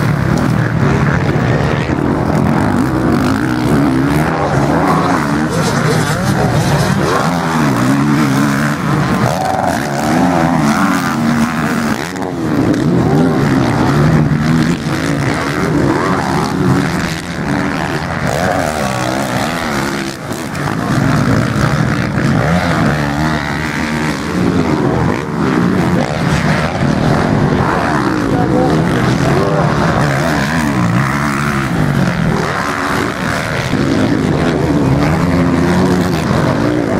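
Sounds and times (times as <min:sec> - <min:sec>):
motocross bike engines revving: 0:00.0 - 0:36.9.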